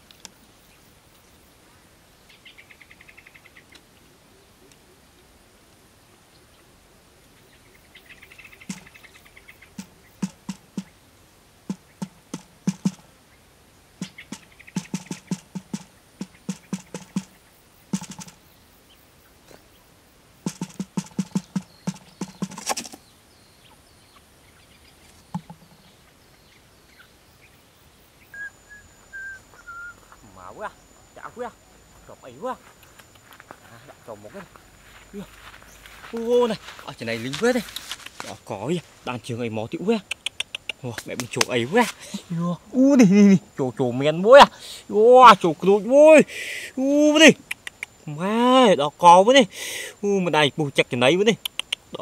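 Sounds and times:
faint bird chirping: 0.0 - 52.0
birds pecking on cardboard: 8.7 - 9.0, 9.8 - 11.0, 11.7 - 13.1, 14.0 - 18.4, 20.4 - 23.0, 25.1 - 25.7.

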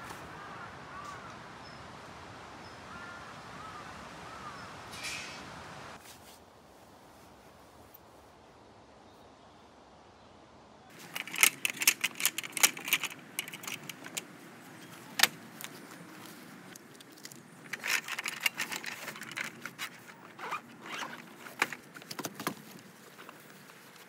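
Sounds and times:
zipper rasping: 17.7 - 21.6.

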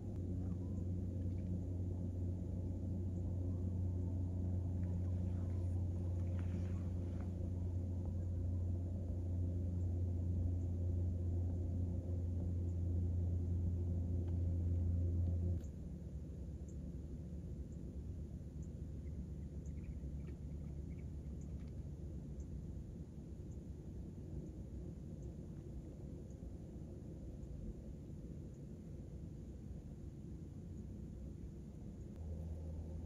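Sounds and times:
low mechanical drone: 0.0 - 33.0.

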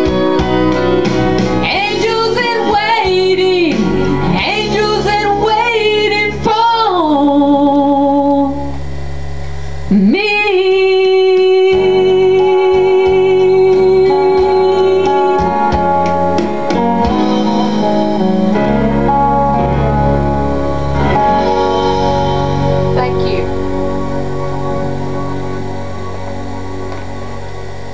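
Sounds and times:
guitar accompaniment: 0.0 - 7.6, 10.6 - 27.9
woman singing country song: 1.6 - 8.8, 9.9 - 16.0.

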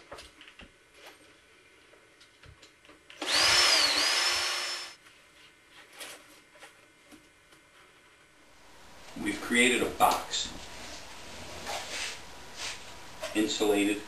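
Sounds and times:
cordless drill driving screw: 3.2 - 5.0.

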